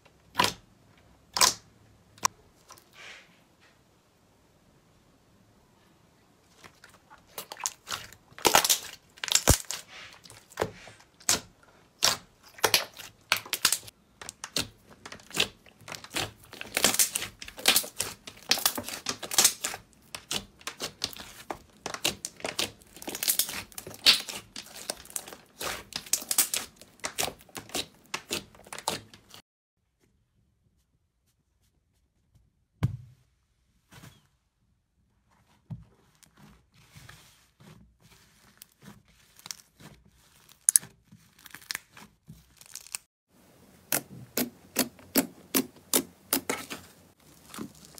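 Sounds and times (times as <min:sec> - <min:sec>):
slime crackling and popping: 0:07.4 - 0:29.4, 0:40.4 - 0:43.1, 0:43.9 - 0:47.9.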